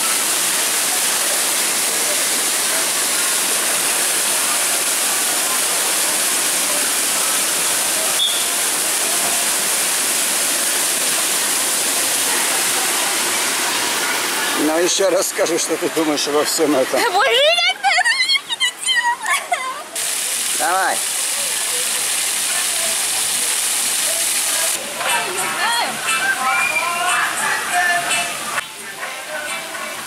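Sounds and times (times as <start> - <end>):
water churning in pool: 0.0 - 17.5
water rushing down slide: 0.0 - 30.0.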